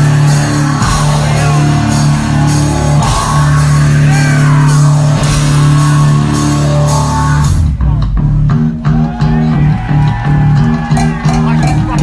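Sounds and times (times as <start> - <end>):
crashing cymbals: 0.0 - 7.6
high sliding guitar notes: 0.0 - 7.8
heavy rock band playing: 0.0 - 12.0.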